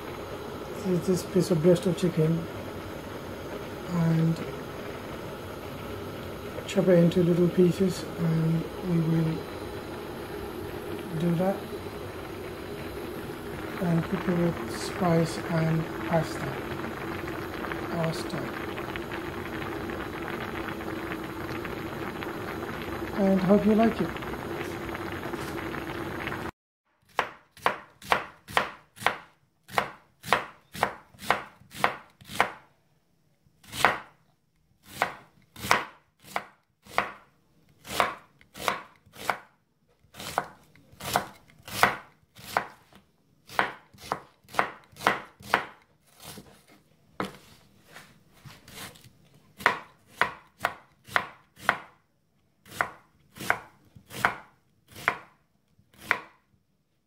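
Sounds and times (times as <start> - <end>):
knife chopping on wooden board: 27.1 - 32.6, 33.7 - 34.1, 35.0 - 37.2, 40.2 - 42.8, 43.5 - 46.4, 49.6 - 51.9, 52.7 - 55.3, 56.0 - 56.4.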